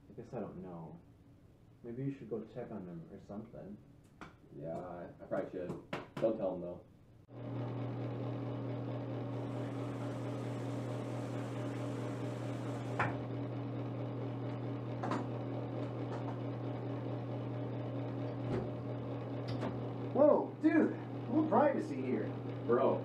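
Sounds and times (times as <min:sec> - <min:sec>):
exhaust fan humming: 0:07.3 - 0:23.0.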